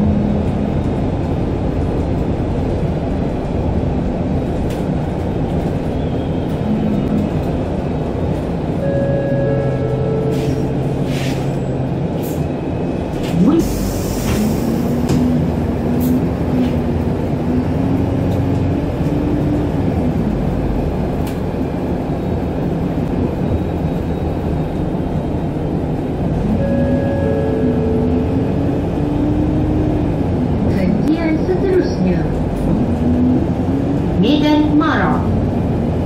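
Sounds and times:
drivetrain whine: 0.0s - 13.5s, 14.3s - 34.4s
bus engine and road rumble: 0.0s - 36.0s.

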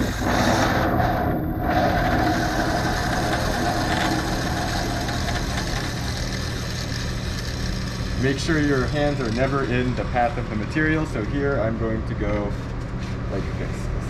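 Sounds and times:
bandsaw cutting metal sheet: 0.0s - 10.6s.

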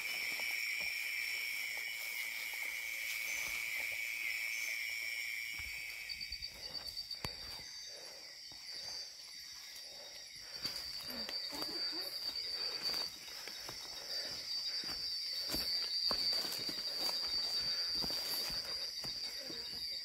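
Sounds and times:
insects droning: 0.0s - 20.0s
rustling in undergrowth: 10.6s - 20.0s.

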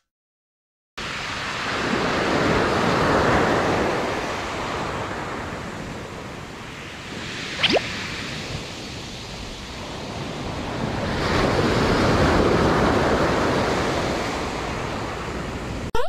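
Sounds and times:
waves breaking on shore: 7.0s - 15.8s.

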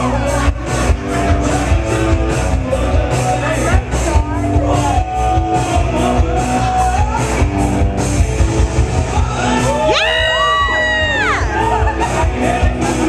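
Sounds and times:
loud music with fast beat: 0.0s - 13.0s.

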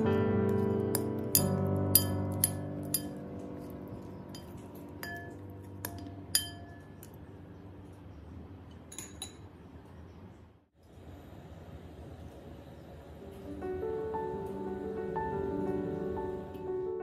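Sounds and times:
spoons clinking against glass bowl: 0.5s - 7.2s.

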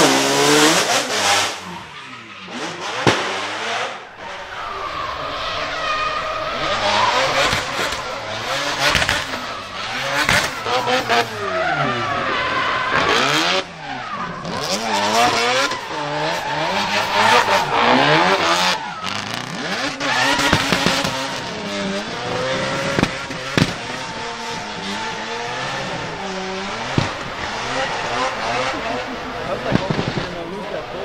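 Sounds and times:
rotary engine revving: 0.0s - 31.0s
tyres squealing: 0.0s - 31.0s
sharp cracks: 2.9s - 11.4s, 14.4s - 21.6s, 22.8s - 28.7s, 29.3s - 30.5s.

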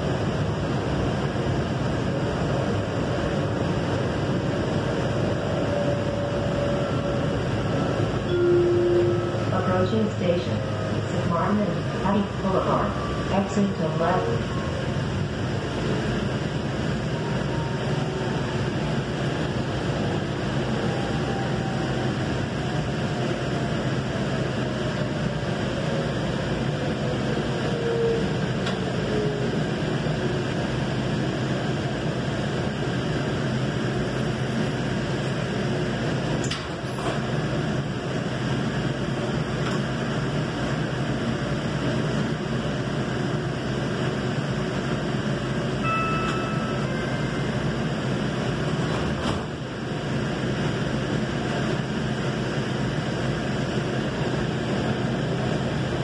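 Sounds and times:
light rail car rumble and hiss: 0.0s - 56.0s
brief beep: 8.3s - 9.5s, 45.8s - 46.9s
faint falling whine: 8.3s - 9.9s.

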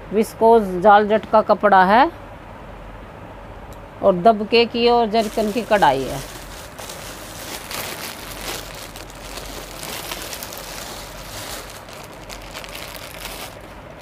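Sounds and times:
clothing and wrapping rustling: 5.1s - 14.0s.

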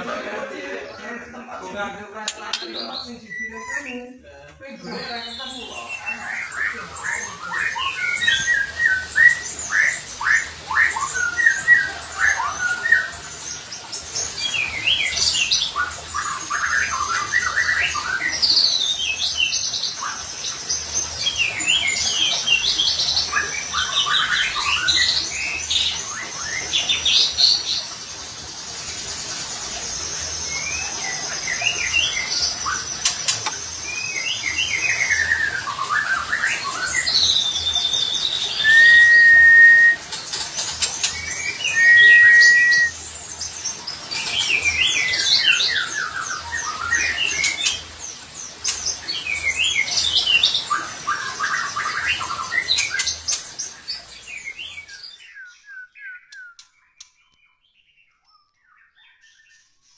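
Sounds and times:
songbird singing: 2.2s - 59.9s
whistled bird notes: 30.5s - 40.1s, 41.0s - 43.0s, 54.4s - 59.9s
high bird trill: 38.3s - 40.0s, 41.4s - 43.0s.

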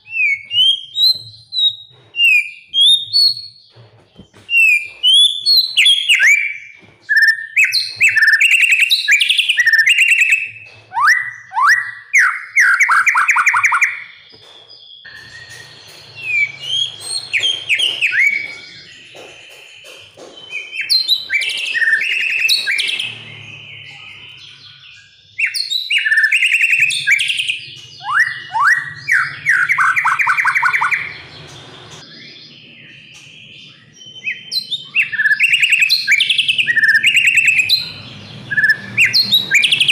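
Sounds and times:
songbird singing varied whistled phrases: 20.4s - 31.2s, 32.0s - 37.9s.

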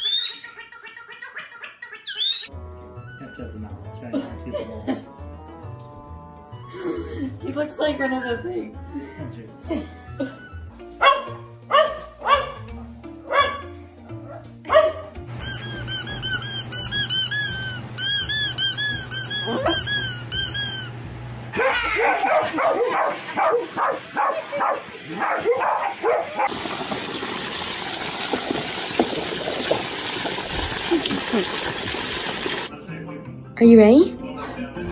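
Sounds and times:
music: 2.5s - 21.4s, 32.7s - 34.9s
dogs barking: 11.0s - 15.2s, 21.5s - 26.7s
high repeated squeaks: 15.4s - 21.0s
hose spraying into plastic pool: 26.3s - 32.7s.

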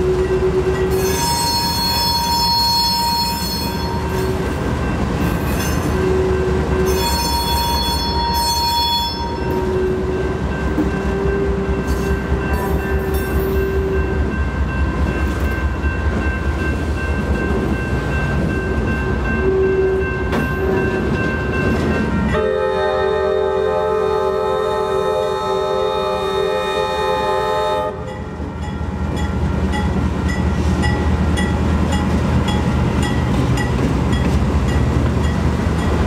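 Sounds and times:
train wheels rumbling on rail: 0.0s - 36.0s
high-pitched wheel squeal: 0.8s - 4.4s, 5.5s - 10.0s
locomotive horn chord: 22.0s - 28.3s.

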